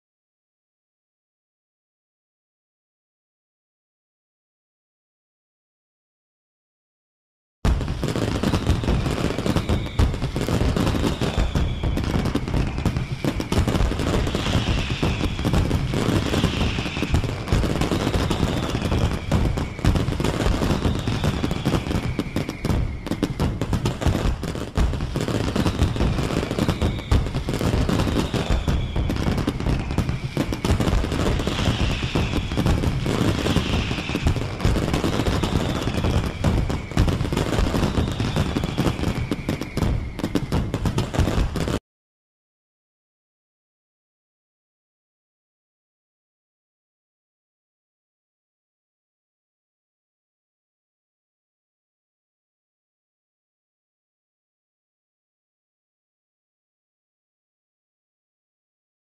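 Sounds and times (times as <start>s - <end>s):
fireworks bangs and crackling: 7.6s - 41.8s
falling firework whistles: 7.7s - 41.8s.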